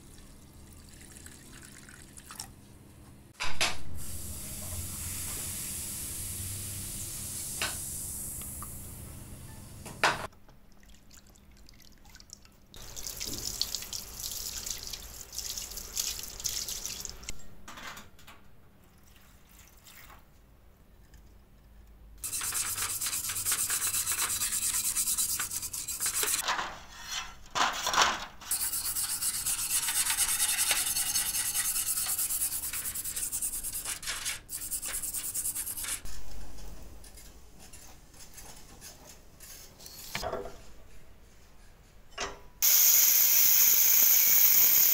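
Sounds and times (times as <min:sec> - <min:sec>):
stiff brush scrubbing metal blade: 0:22.2 - 0:26.4, 0:28.5 - 0:33.9.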